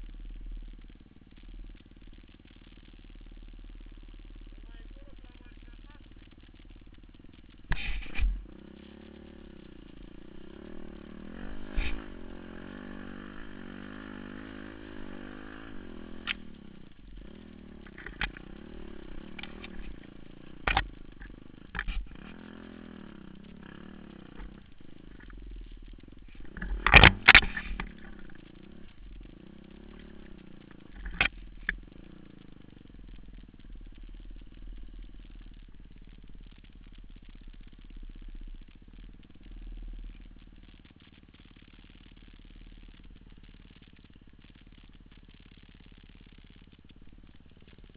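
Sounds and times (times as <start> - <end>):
motorcycle engine revving: 0.0 - 47.9
motorcycle knocking over bumps: 5.4 - 39.2.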